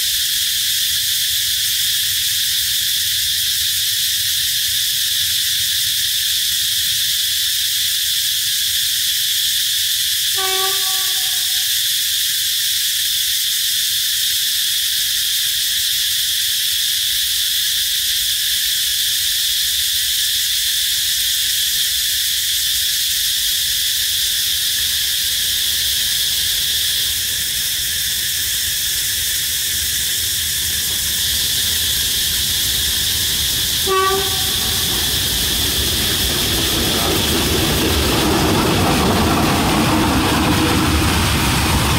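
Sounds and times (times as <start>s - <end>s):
insects chorus: 0.0s - 41.9s
locomotive horn blasts: 10.4s - 11.7s, 33.8s - 35.4s.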